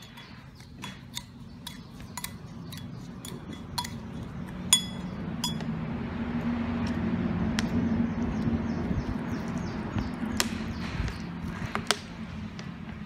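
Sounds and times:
spoon clinking against ceramic bowl: 0.0 - 5.7.

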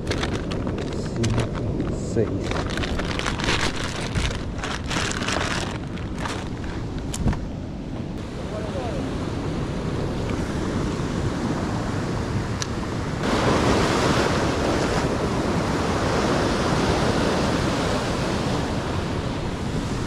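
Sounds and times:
wind buffeting microphone: 0.0 - 20.0
surf breaking over rocks: 8.2 - 20.0.

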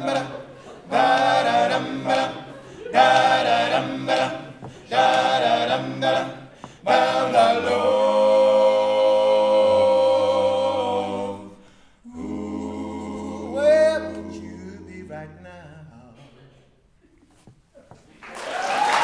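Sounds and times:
male voices singing in harmony: 0.0 - 16.4.

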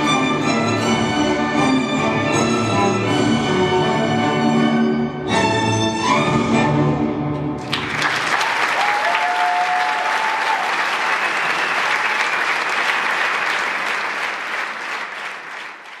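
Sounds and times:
audience applauding: 7.6 - 16.0
high whistle: 11.1 - 12.2.

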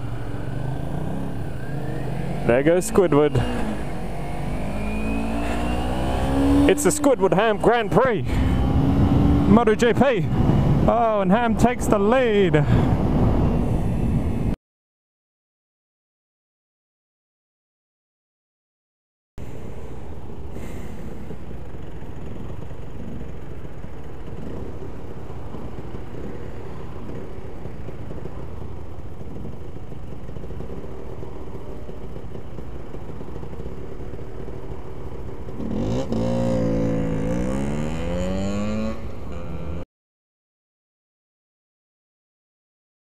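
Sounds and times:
engine revving: 0.0 - 10.9, 35.6 - 39.8
traffic rumble: 0.0 - 14.6, 19.4 - 39.8
motorcycle engine idling: 19.4 - 35.6.

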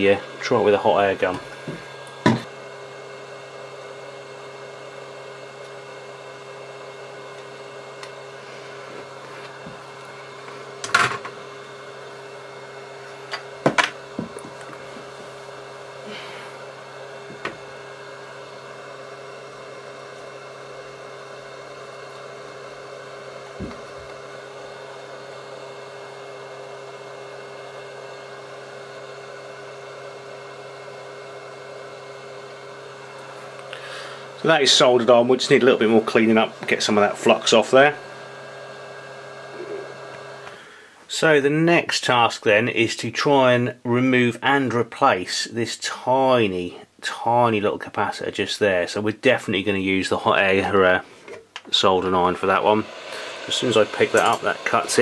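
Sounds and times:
electrical equipment humming: 0.0 - 55.0.

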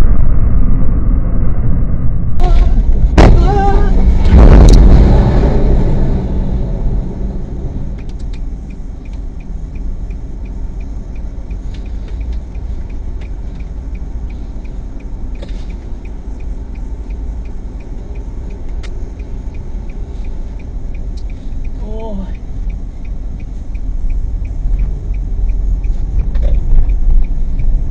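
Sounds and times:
car engine and road noise: 0.0 - 27.9
indicator relay clicking: 8.0 - 27.8.

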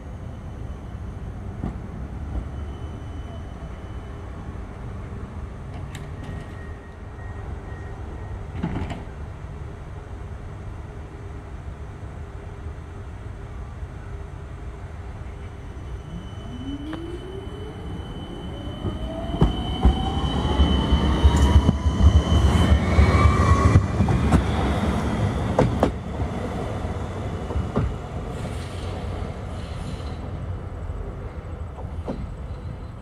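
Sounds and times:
tram rumble: 0.0 - 33.0
tram motor whine: 15.3 - 28.3.

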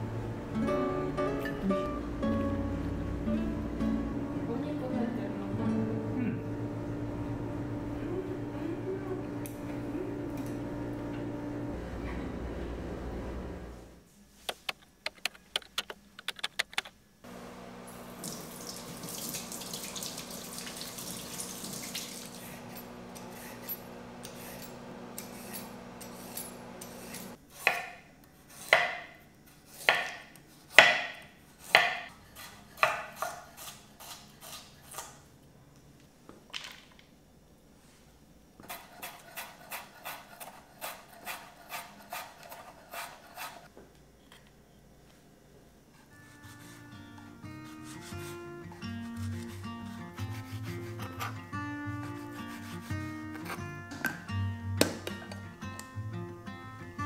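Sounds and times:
quick clicks: 14.5 - 17.0.

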